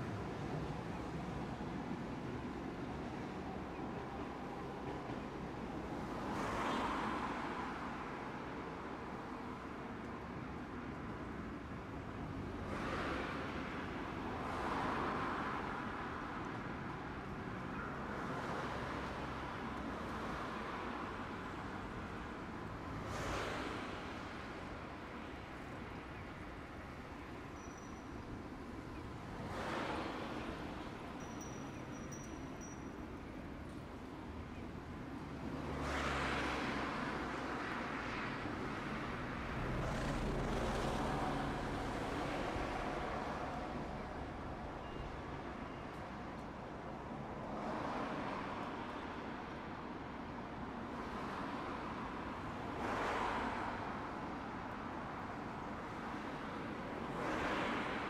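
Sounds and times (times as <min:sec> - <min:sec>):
road traffic hum: 0:00.0 - 0:58.0
vehicles passing: 0:32.5 - 0:49.9.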